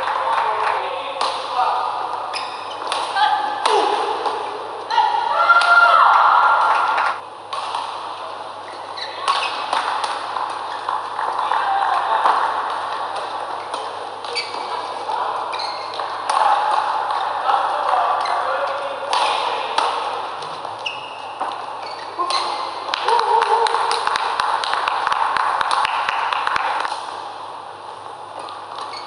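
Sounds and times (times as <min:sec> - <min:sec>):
voices: 0:00.0 - 0:07.2, 0:08.2 - 0:24.8
rackets striking shuttlecock: 0:00.1 - 0:01.6, 0:02.4 - 0:04.6, 0:06.7 - 0:08.4, 0:09.2 - 0:14.8, 0:19.0 - 0:27.2
shoes squeaking on court: 0:02.3 - 0:03.4, 0:08.6 - 0:11.5, 0:13.2 - 0:18.8, 0:20.4 - 0:22.9, 0:28.3 - 0:29.0.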